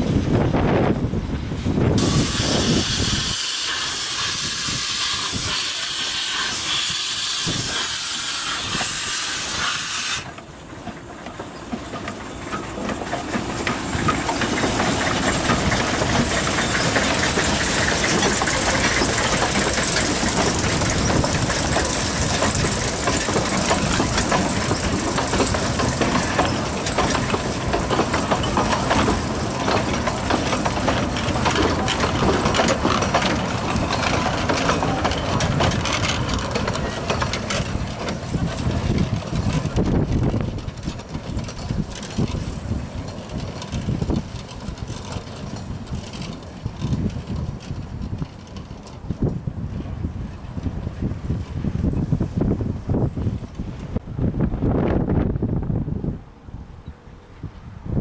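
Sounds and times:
carriages rattling over track: 0:00.0 - 0:58.0
steam locomotive passing: 0:00.0 - 0:58.0
locomotive hissing steam: 0:01.5 - 0:45.8.

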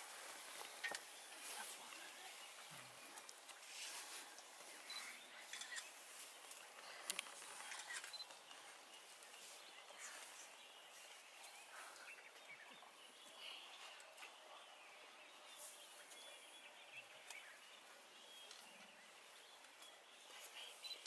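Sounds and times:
soft clicks and rustles: 0:00.0 - 0:12.5.

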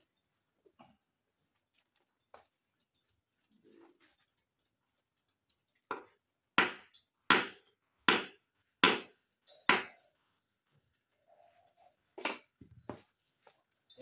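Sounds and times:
hammer striking wooden block: 0:05.9 - 0:10.0.

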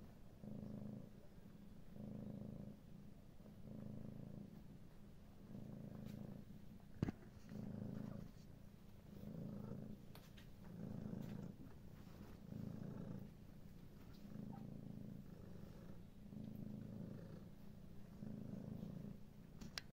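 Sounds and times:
cat purring: 0:00.0 - 0:19.9.

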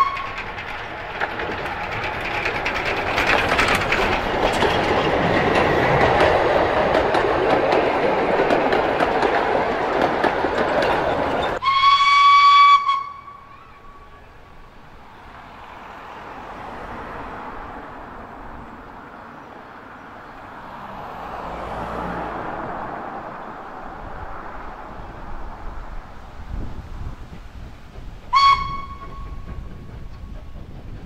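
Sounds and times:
steam locomotive whistle: 0:00.0 - 0:00.5, 0:11.4 - 0:14.2, 0:28.3 - 0:29.6
distant train working: 0:00.0 - 0:31.0
train carriages rattling past: 0:00.0 - 0:31.0.

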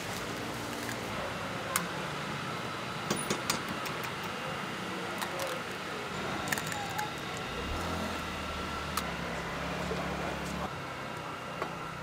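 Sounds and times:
market hum: 0:00.0 - 0:12.0
faint voices: 0:04.0 - 0:11.9.

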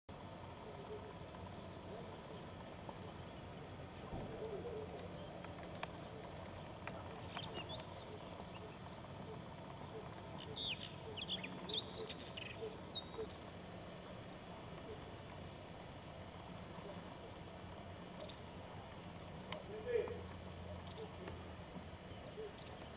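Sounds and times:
bird chirping: 0:07.0 - 0:08.8, 0:09.9 - 0:13.6.

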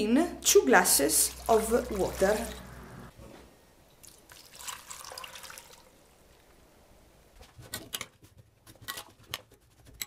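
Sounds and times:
water splashing into pot: 0:01.1 - 0:02.9, 0:04.0 - 0:05.9.

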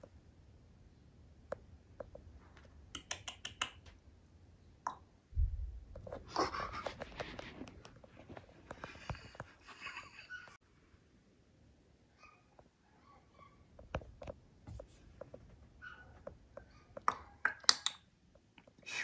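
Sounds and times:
sharp clicks: 0:02.9 - 0:04.0
low thump: 0:05.4 - 0:05.9
faint rustling and scratching: 0:05.9 - 0:10.6, 0:12.4 - 0:17.0.

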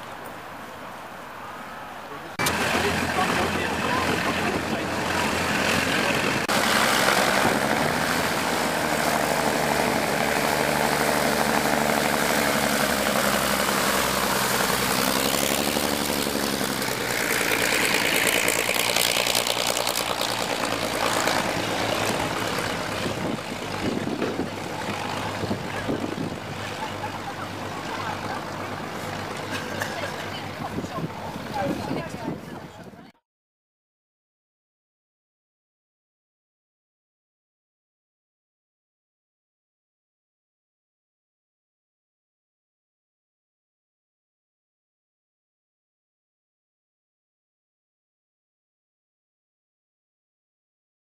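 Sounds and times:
biplane engines running: 0:00.2 - 0:33.1.

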